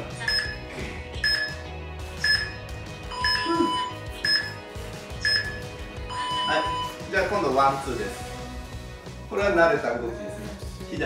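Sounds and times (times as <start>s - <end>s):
background music: 0.0s - 11.0s
long low timer tone: 0.3s - 0.6s, 1.2s - 1.6s, 2.2s - 4.6s, 5.2s - 7.0s
short high timer beeps: 0.3s - 0.6s, 1.2s - 1.6s, 2.2s - 4.6s, 5.2s - 7.0s.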